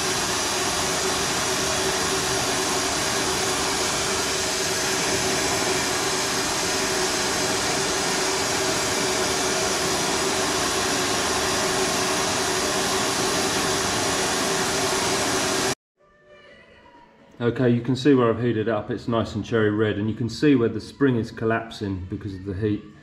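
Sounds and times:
gas torch flame hissing: 0:00.0 - 0:15.8
low hum: 0:00.0 - 0:15.8.

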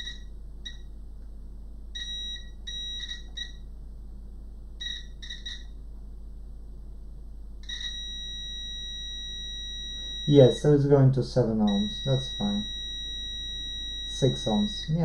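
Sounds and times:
multimeter continuity beep: 0:00.0 - 0:00.9, 0:01.9 - 0:03.7, 0:04.8 - 0:05.8, 0:07.6 - 0:10.6, 0:11.6 - 0:15.0.

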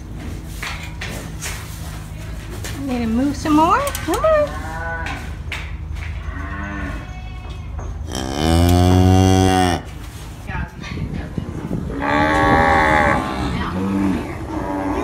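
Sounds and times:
cow mooing: 0:08.1 - 0:09.9, 0:11.9 - 0:15.0.

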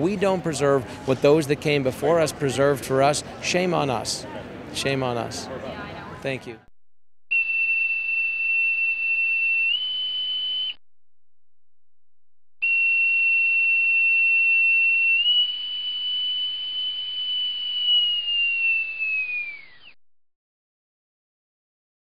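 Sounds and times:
steady electronic tone: 0:12.6 - 0:20.0.

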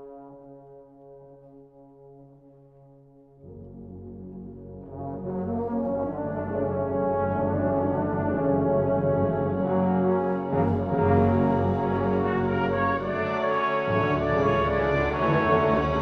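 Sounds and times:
brass band playing: 0:03.5 - 0:16.0.

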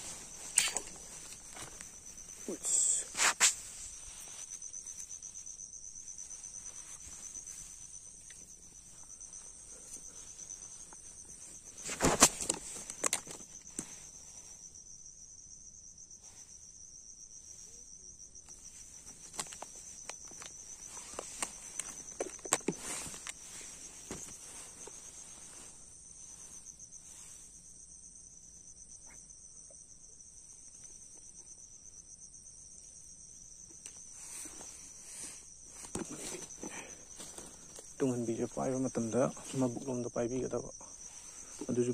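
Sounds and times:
insects chirring: 0:00.0 - 0:41.9
fishing tackle clicks and rustles: 0:00.1 - 0:02.2, 0:11.7 - 0:13.9, 0:18.5 - 0:25.0.

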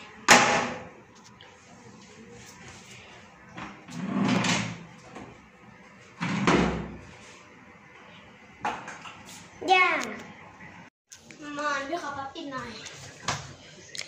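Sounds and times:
wardrobe door sliding rumble: 0:03.9 - 0:04.9.

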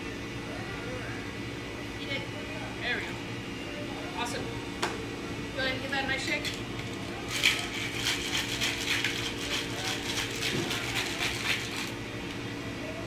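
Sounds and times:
ice rattling in a shaker: 0:07.3 - 0:12.0.

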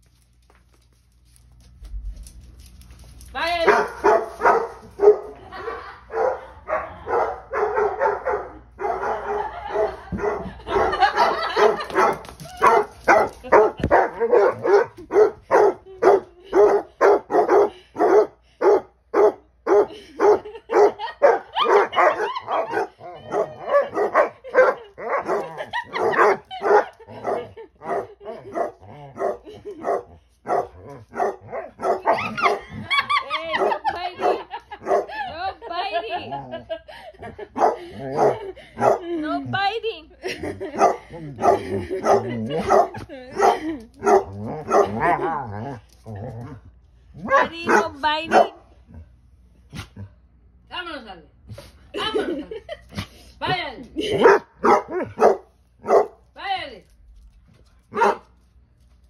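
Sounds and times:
dogs barking and baying: 0:03.6 - 0:35.4, 0:36.0 - 0:39.2, 0:40.2 - 0:48.7, 0:54.0 - 0:56.3, 0:57.8 - 0:58.4.

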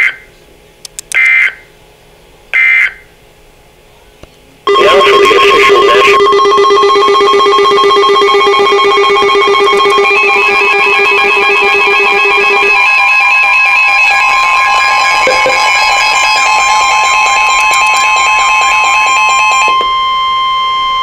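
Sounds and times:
steady electronic alert tone: 0:04.7 - 0:20.2.

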